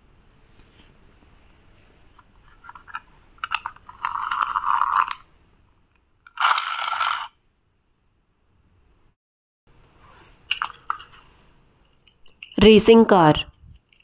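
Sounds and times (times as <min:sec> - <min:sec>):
toy car motor whirring: 0:03.8 - 0:05.2, 0:06.3 - 0:07.3.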